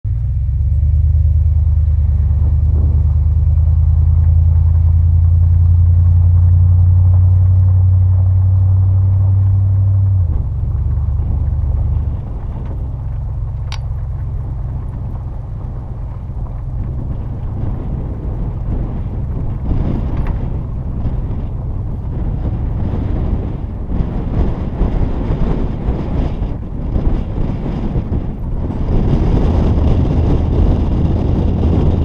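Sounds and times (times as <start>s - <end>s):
wind and road noise rumble: 0.0s - 32.0s
sharp tick: 13.6s - 14.0s.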